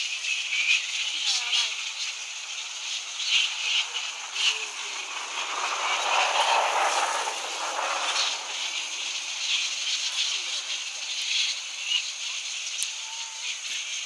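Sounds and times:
flying foxes squabbling calls: 0.0 - 14.0
broad rushing sound: 2.6 - 11.0.

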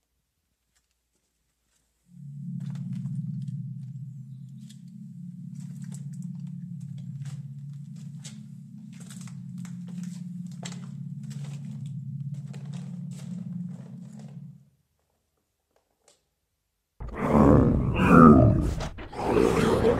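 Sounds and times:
low drone: 2.1 - 14.6.

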